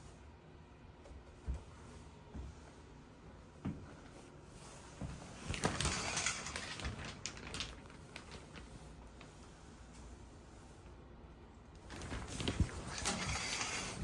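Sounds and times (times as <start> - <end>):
shower curtain rustling: 4.2 - 10.8, 11.8 - 14.0
curtain rings clicking: 5.6 - 7.0, 12.8 - 14.0.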